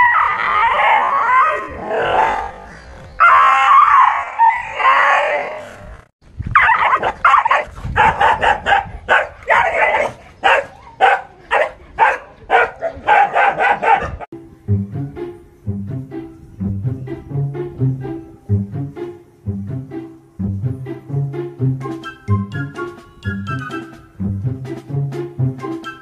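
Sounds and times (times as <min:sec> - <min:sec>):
dog crying out: 0:00.0 - 0:02.5, 0:06.6 - 0:08.5
dog barking rapidly: 0:06.6 - 0:14.3.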